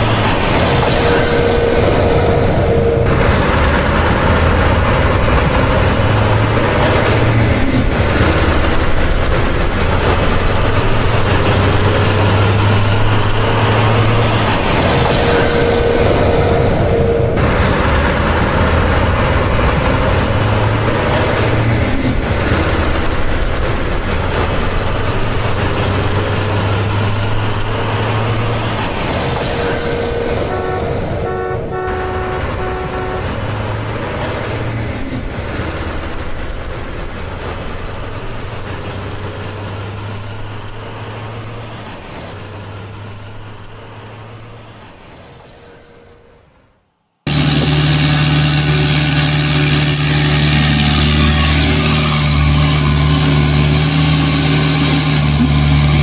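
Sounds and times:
truck horn: 0:00.0 - 0:08.8, 0:10.7 - 0:18.8, 0:29.4 - 0:34.8, 0:45.6 - 0:46.7, 0:47.3 - 0:56.0
truck engine running: 0:00.0 - 0:44.9, 0:47.3 - 0:56.0.

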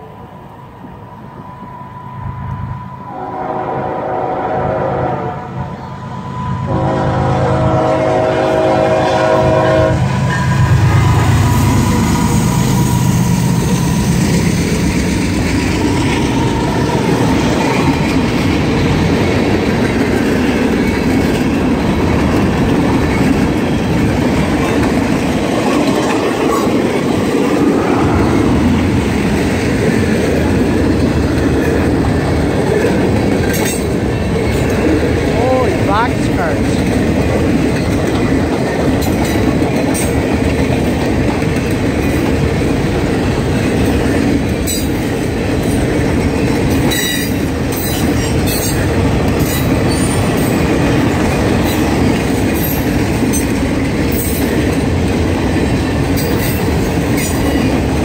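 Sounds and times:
train wheels on rails: 0:00.0 - 0:58.0
locomotive air horn: 0:02.3 - 0:11.0.

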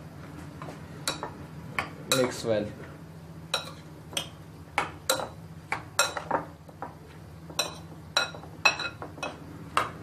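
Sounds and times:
metal spoon clinking bowl: 0:07.6 - 0:09.4.

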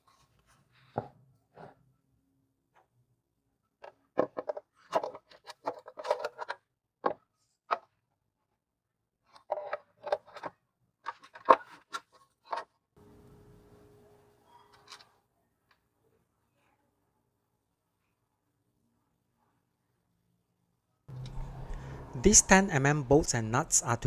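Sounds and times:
faint steady hum: 0:21.1 - 0:24.0.

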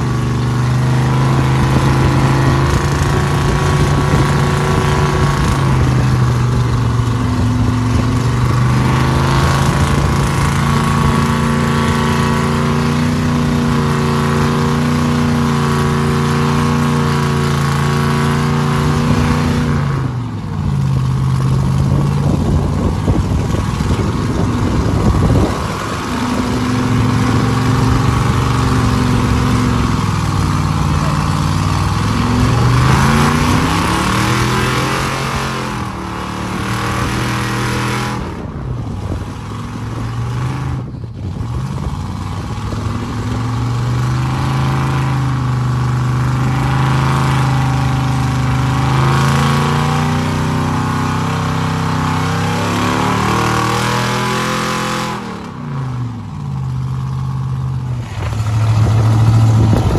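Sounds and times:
truck engine revving high: 0:00.0 - 0:59.9.

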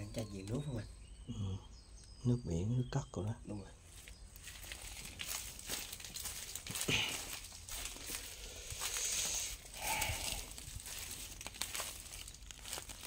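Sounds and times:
crinkling and crunching: 0:03.9 - 0:13.0.

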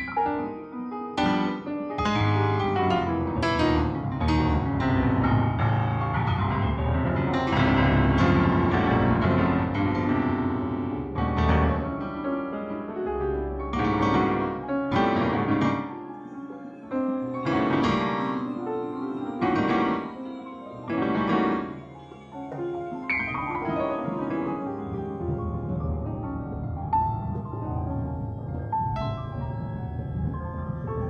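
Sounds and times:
deep bass piano notes: 0:00.0 - 0:16.0, 0:22.6 - 0:31.0
solo piano music: 0:00.0 - 0:31.0.

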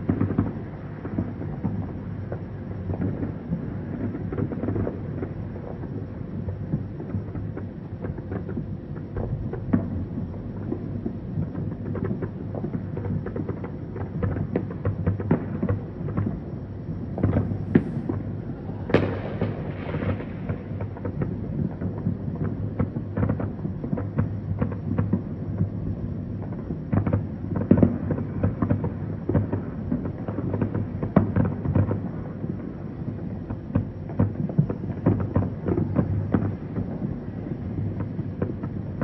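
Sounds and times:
distant fireworks booms and pops: 0:00.0 - 0:39.0
low rumble: 0:17.0 - 0:19.6.

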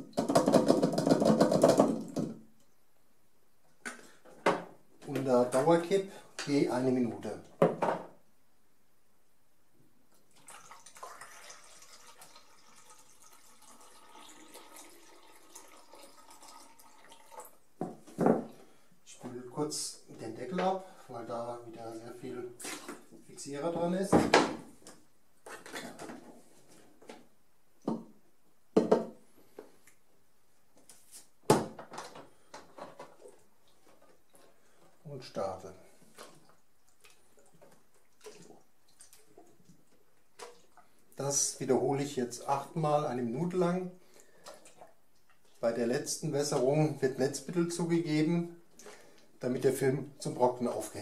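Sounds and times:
water trickling into tank: 0:10.2 - 0:17.7, 0:36.2 - 0:41.2.

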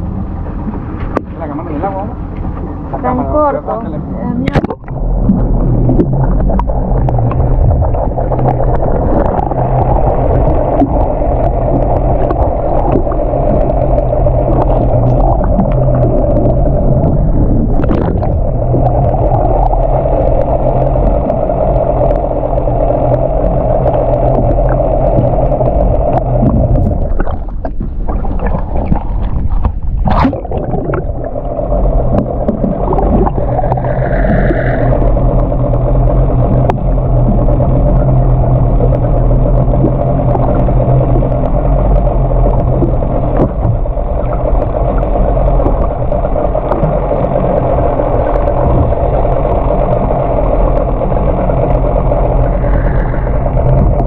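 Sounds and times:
muffled boat engine underwater: 0:00.0 - 0:54.0
water gurgling: 0:00.0 - 0:54.0.

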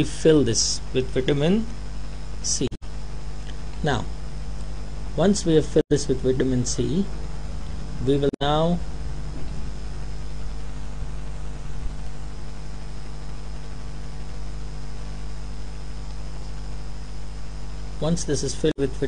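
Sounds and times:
person speaking: 0:00.0 - 0:01.8, 0:02.4 - 0:02.8, 0:03.5 - 0:04.2, 0:05.1 - 0:07.2, 0:07.8 - 0:08.9, 0:18.0 - 0:19.0
electrical mains hum: 0:00.0 - 0:19.0.

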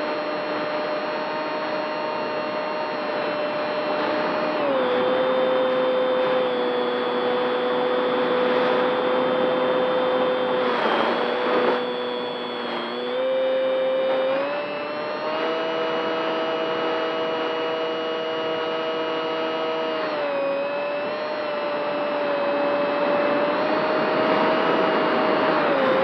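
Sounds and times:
wind noise: 0:00.0 - 0:13.2, 0:20.0 - 0:26.0
model plane motor whine: 0:00.0 - 0:26.0.

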